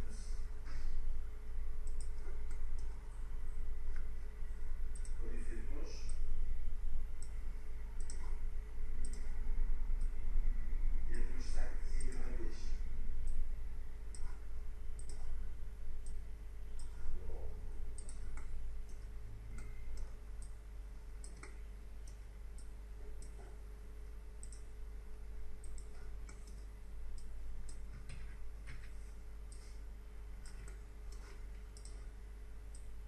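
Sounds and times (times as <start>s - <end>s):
steady low hum: 0.0s - 33.0s
computer mouse clicking: 1.8s - 3.0s, 4.9s - 6.2s, 7.2s - 7.4s, 8.0s - 9.4s, 12.0s - 12.5s, 14.1s - 15.4s, 16.8s - 20.6s, 21.2s - 23.6s, 24.4s - 24.8s, 25.6s - 29.8s, 30.4s - 33.0s.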